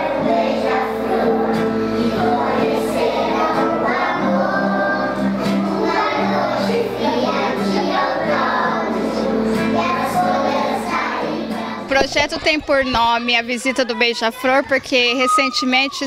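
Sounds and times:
children singing: 0.0s - 11.9s
acoustic guitar: 0.0s - 14.8s.

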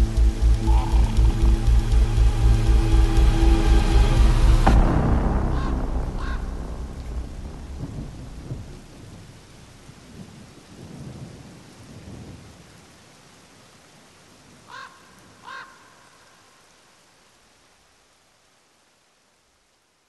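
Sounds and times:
thunder rumbling: 0.0s - 13.0s
steady rain: 0.0s - 20.0s
crow cawing: 0.5s - 1.9s, 5.5s - 6.6s, 14.7s - 16.6s.

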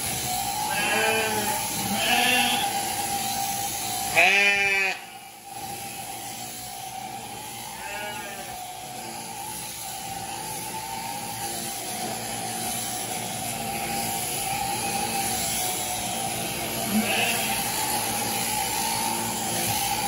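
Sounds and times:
electric shears buzzing: 0.0s - 20.0s
sheep bleating: 0.6s - 2.8s, 4.1s - 5.2s, 7.7s - 8.7s, 16.8s - 18.0s.

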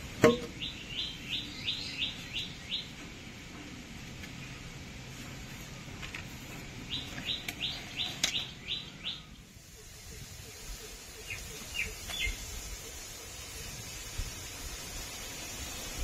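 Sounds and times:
bird chirping: 0.4s - 3.1s, 6.6s - 12.6s.

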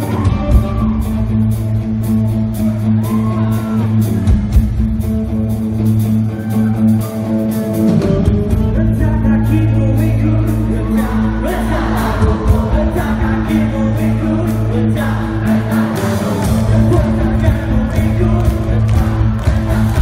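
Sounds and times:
live rock band playing: 0.0s - 20.0s
person singing: 7.9s - 20.0s.

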